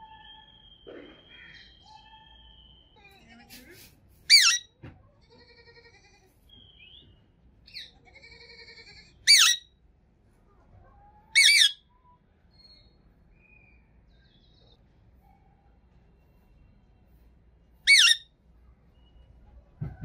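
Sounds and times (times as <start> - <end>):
parakeet chattering: 4.3 - 4.7, 7.7 - 9.6, 11.4 - 11.8, 17.8 - 18.2
parakeet shrill screeches: 4.3 - 4.7, 8.7 - 9.7, 11.3 - 11.9, 17.8 - 18.3.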